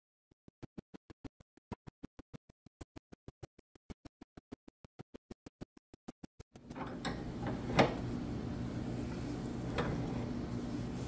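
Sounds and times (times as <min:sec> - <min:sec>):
low shop hum: 0:06.6 - 0:11.0
handle knocking in vise: 0:06.7 - 0:08.3, 0:09.2 - 0:10.4
hand tool strokes on wood: 0:08.8 - 0:11.0.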